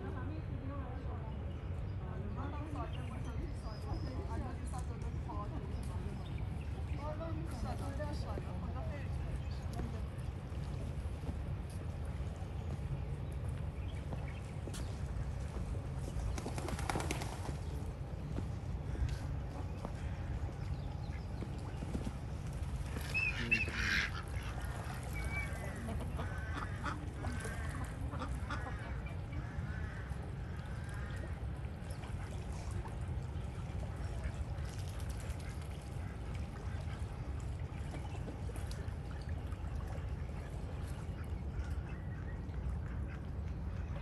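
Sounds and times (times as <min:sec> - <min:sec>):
waterfowl honking: 0:23.1 - 0:30.1.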